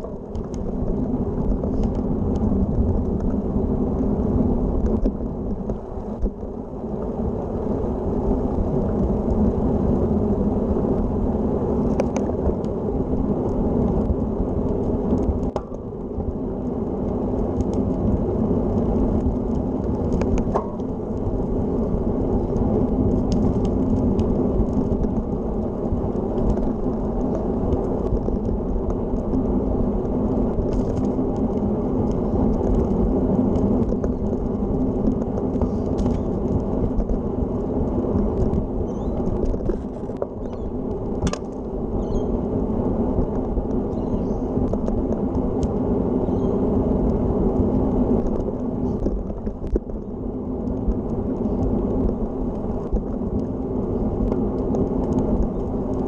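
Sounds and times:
bike tyres rolling on asphalt: 0.0s - 56.0s
wind buffeting microphone: 0.0s - 56.0s.

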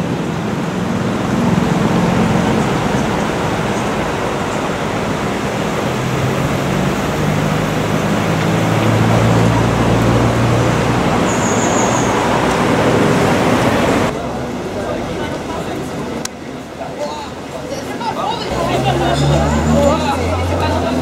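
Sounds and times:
car engines running: 0.0s - 21.0s
constant rushing noise: 0.0s - 21.0s
high-pitched squeak: 11.3s - 12.2s.

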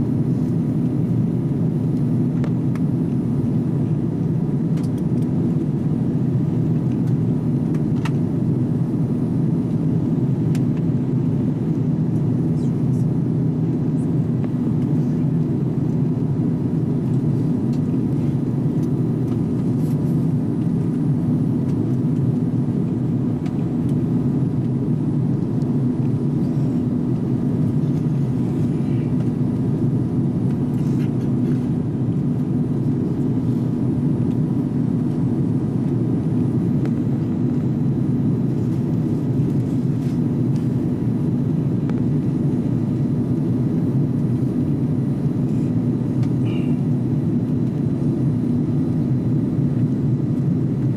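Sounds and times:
airliner cabin rumble: 0.0s - 50.9s
faint steady hum: 0.0s - 50.9s.

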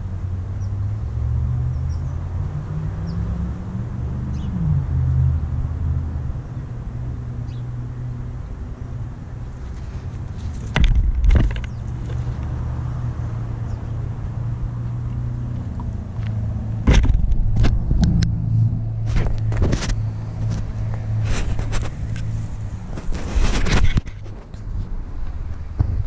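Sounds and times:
low motor hum: 8.9s - 23.6s
thumps near microphone: 10.5s - 12.2s, 16.8s - 18.1s.

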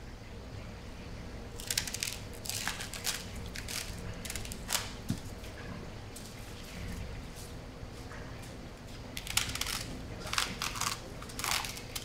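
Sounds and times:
low steady hum: 0.0s - 12.0s
celery being cut crunching: 9.2s - 12.0s.

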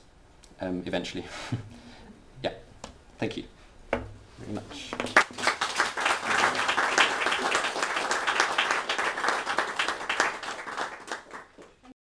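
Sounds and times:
audience applauding: 5.1s - 11.8s.

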